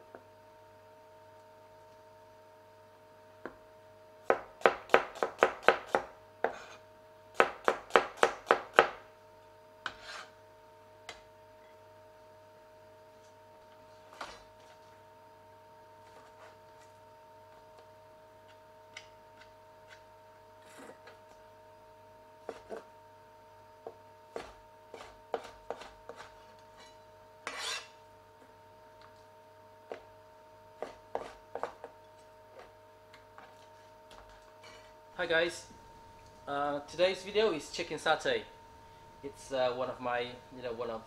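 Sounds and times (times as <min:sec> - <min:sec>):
cleaver chopping on cutting board: 0:24.4 - 0:26.3, 0:30.8 - 0:31.9.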